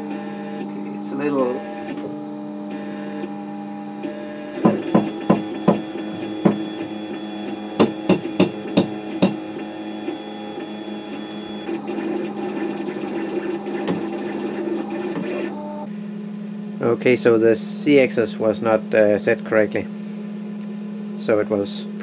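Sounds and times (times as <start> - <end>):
printer buzzing: 0.0 - 15.9
stepper motors humming: 0.0 - 22.0.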